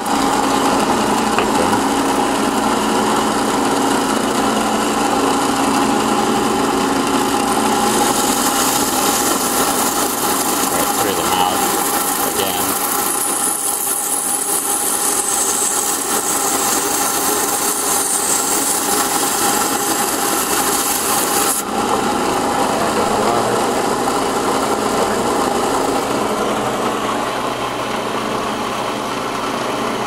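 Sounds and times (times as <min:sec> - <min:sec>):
bandsaw running: 0:00.0 - 0:29.2
saw blade hissing through coral: 0:07.8 - 0:21.6.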